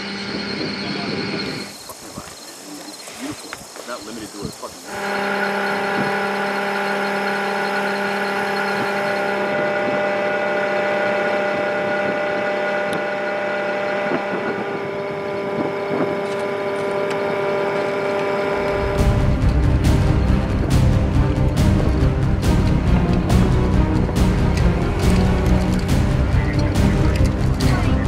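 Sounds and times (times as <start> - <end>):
vehicle engine idling: 4.9 - 28.0
music with heavy low beat: 18.7 - 28.0.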